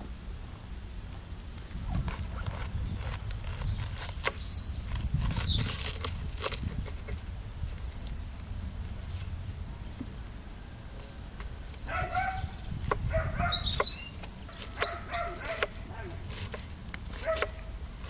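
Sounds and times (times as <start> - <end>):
loud high-pitched chirps: 13.4 - 15.8.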